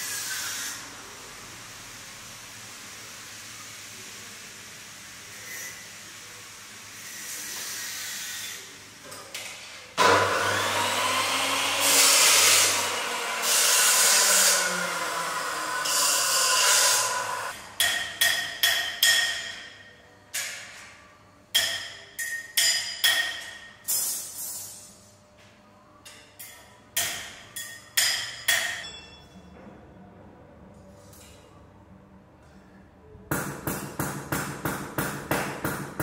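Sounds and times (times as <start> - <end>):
cut-off saw cutting steel: 10.0 - 17.6.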